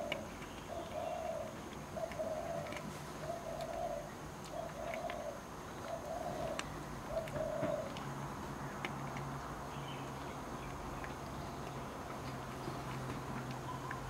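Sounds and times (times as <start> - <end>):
dove cooing: 0.0 - 8.0.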